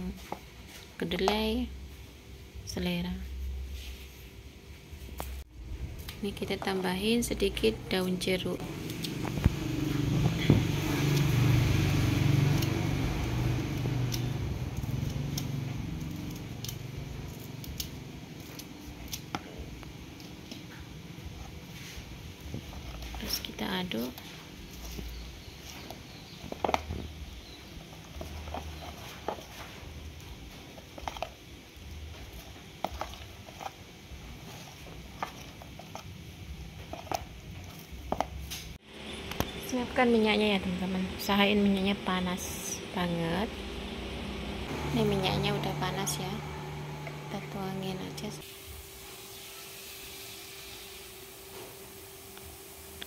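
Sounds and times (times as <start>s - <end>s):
low hum: 0.0s - 38.1s, 38.7s - 53.0s
scissors snipping leaves: 8.6s - 20.8s.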